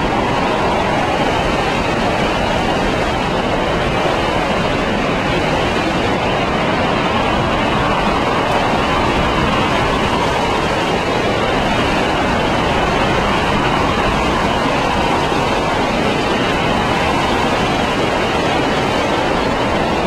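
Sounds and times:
strong gusting wind: 0:00.0 - 0:20.0.

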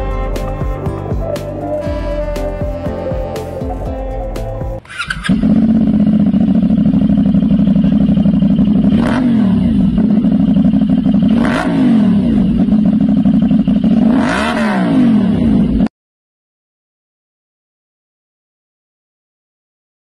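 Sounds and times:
motorcycle engine idling and revving: 0:00.0 - 0:15.9.

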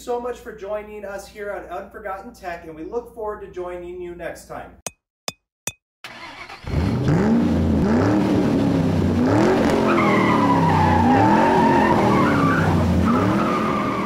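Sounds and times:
car engine revving: 0:06.1 - 0:14.0
tyres squealing: 0:09.9 - 0:14.0.

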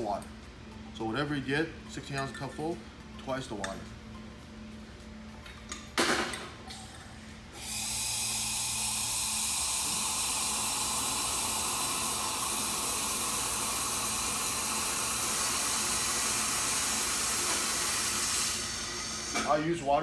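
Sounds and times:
hot-water spout hissing: 0:07.6 - 0:19.4.

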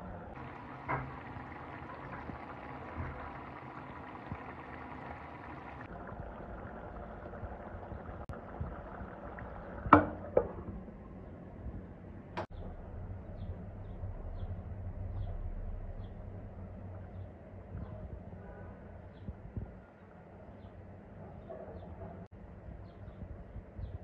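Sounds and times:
curry simmering and bubbling: 0:00.3 - 0:11.4.

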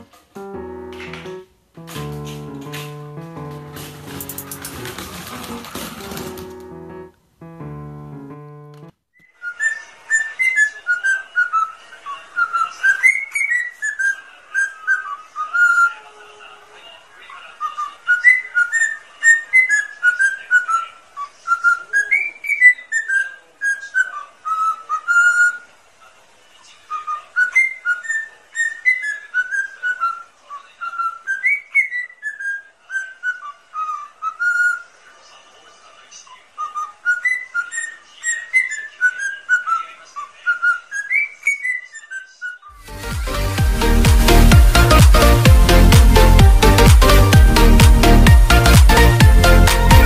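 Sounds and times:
cockatiel whistling a melody: 0:09.2 - 0:11.7, 0:12.4 - 0:16.0, 0:17.7 - 0:20.8, 0:27.0 - 0:30.2, 0:30.8 - 0:34.9, 0:36.6 - 0:39.8, 0:40.5 - 0:42.7.

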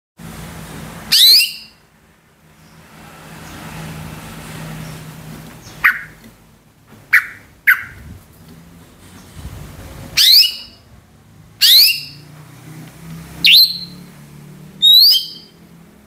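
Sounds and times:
bird calling: 0:05.6 - 0:06.2, 0:07.0 - 0:08.0, 0:10.2 - 0:10.8, 0:11.6 - 0:12.3, 0:14.8 - 0:15.6.

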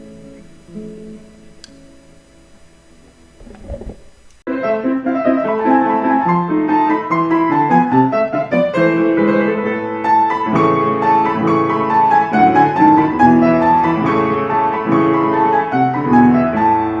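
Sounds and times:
piano music: 0:04.5 - 0:17.0.

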